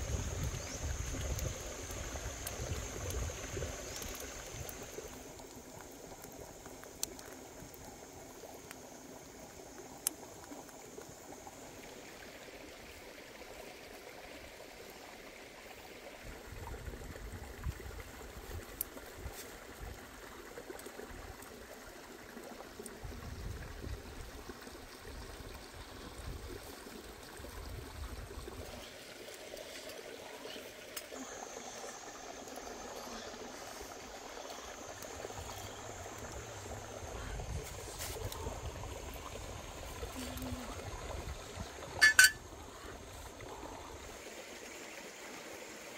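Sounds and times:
running water of small stream: 0:00.0 - 0:45.9
thin high steady tone: 0:42.0 - 0:42.4.

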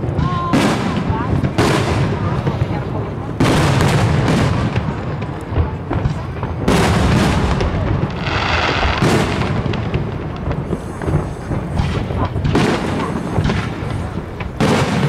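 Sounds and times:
firework shells booming: 0:00.0 - 0:15.0
hissing firework burst: 0:06.0 - 0:15.0.

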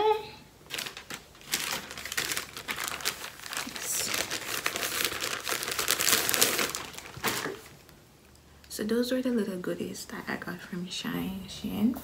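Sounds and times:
plastic bag crinkling: 0:00.6 - 0:07.9.

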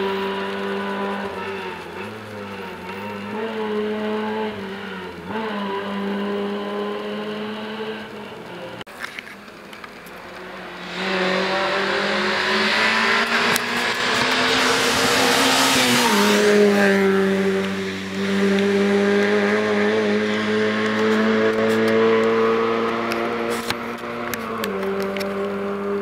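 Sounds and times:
rally car passing by: 0:10.1 - 0:26.0.

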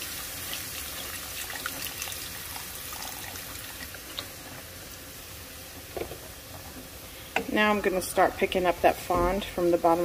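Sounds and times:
liquid pouring into pot: 0:00.0 - 0:04.3.

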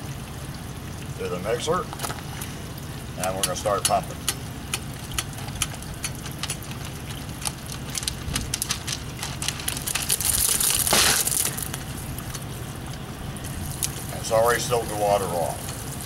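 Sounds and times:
running water: 0:00.0 - 0:16.0
loud hiss: 0:10.8 - 0:11.8.

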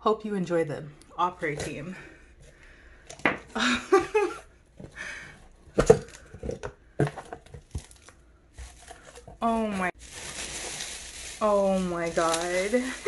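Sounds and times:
paper shred rustling and crackling: 0:07.6 - 0:13.0.

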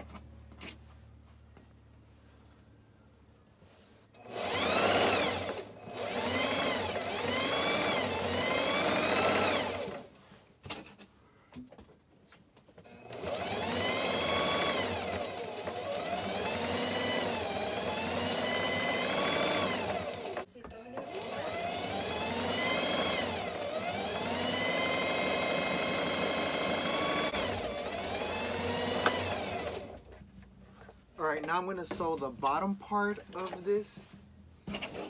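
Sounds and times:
sewing machine stitching: 0:04.2 - 0:10.1, 0:12.9 - 0:30.0, 0:34.6 - 0:35.0.

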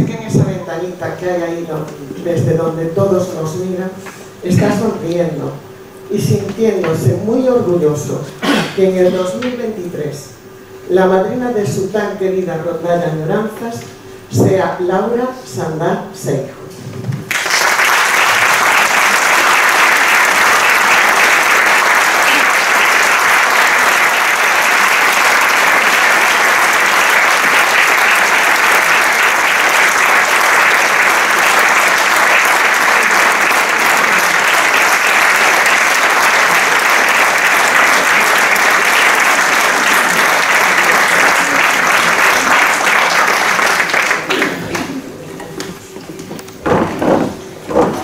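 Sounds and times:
audience applause: 0:17.3 - 0:45.0.

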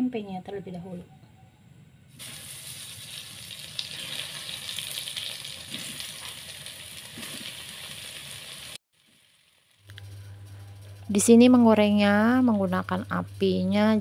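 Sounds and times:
food frying in oil: 0:02.2 - 0:09.9.

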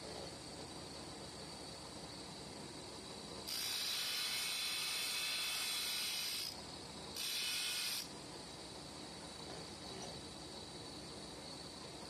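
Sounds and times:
spinning wheel hiss: 0:01.9 - 0:08.1.

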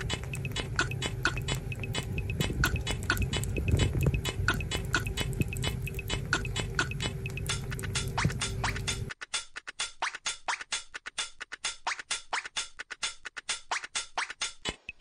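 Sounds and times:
animals licking wet smacking clicks: 0:00.0 - 0:09.0
faint steady hum: 0:00.0 - 0:09.1.

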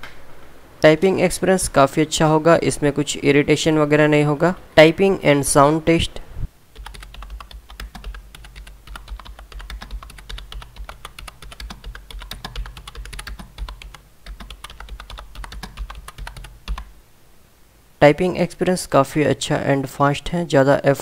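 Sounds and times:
fast keyboard typing: 0:06.7 - 0:16.9.

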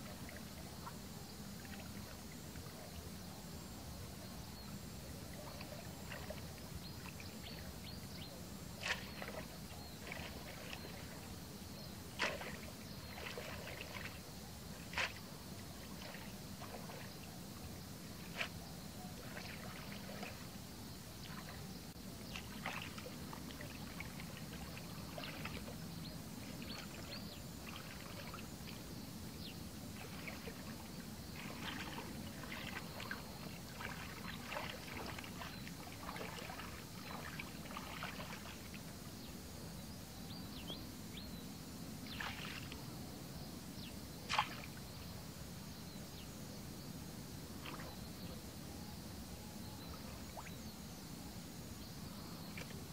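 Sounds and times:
muddy water splashing: 0:05.2 - 0:20.6, 0:21.2 - 0:29.0, 0:29.8 - 0:38.9, 0:42.1 - 0:42.8, 0:44.3 - 0:44.9, 0:47.5 - 0:48.1.

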